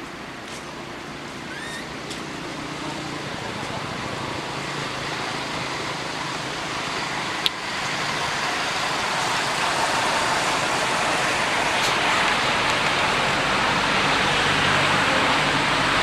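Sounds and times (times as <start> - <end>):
steady rushing noise: 2.3 - 16.0.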